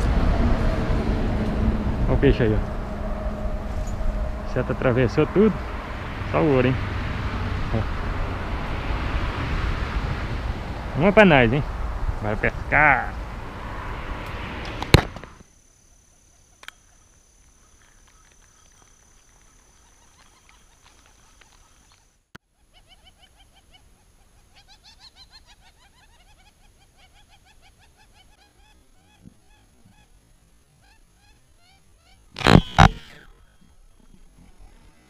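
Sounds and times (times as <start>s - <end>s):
birds calling: 14.9s - 35.0s.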